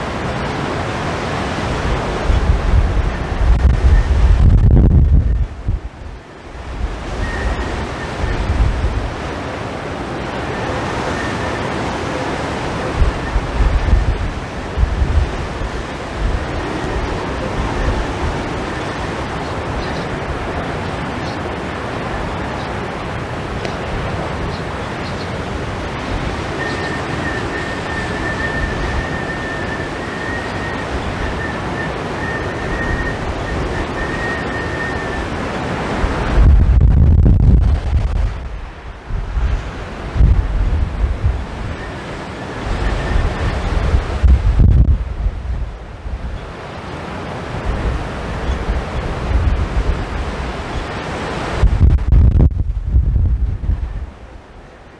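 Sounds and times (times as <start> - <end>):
surf breaking on rocky shore: 0.0 - 54.9
wind buffeting microphone: 0.0 - 54.9
thin high whistle: 7.2 - 8.4, 26.6 - 35.4
surf breaking: 25.6 - 41.8.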